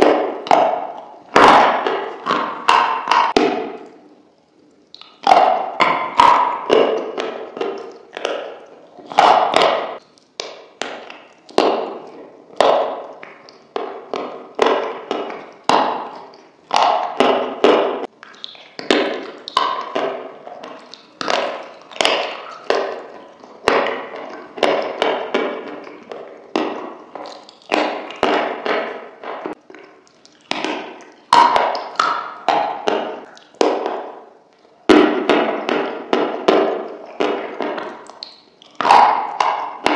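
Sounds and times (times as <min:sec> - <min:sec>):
wet lip smacks: 0:04.8 - 0:17.2, 0:18.0 - 0:25.1, 0:25.7 - 0:34.8, 0:36.9 - 0:39.9
sharp mouth clicks: 0:04.9 - 0:11.5, 0:18.1 - 0:20.0, 0:27.0 - 0:33.6, 0:37.8 - 0:39.9.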